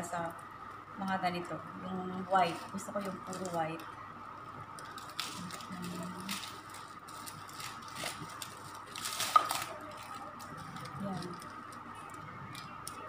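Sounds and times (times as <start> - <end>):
faint steady high hum: 0.0 - 13.0
plastic packaging crinkling: 2.2 - 3.9, 4.7 - 13.0.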